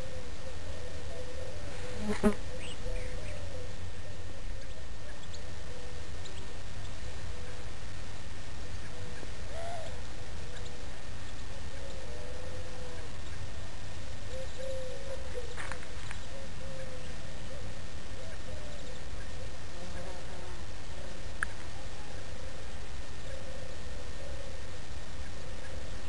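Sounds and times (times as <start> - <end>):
bird calls and chirps: 0.0 - 7.2, 8.8 - 20.1.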